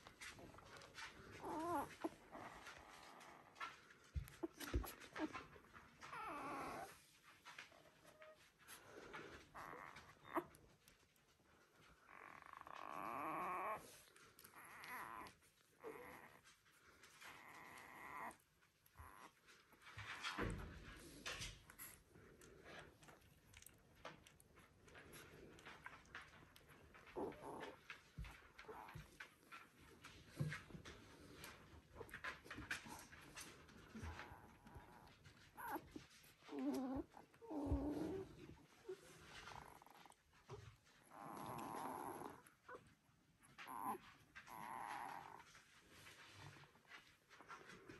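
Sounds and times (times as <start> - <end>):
puppies whining: 0.0 - 46.5
faint rustling: 0.0 - 47.9.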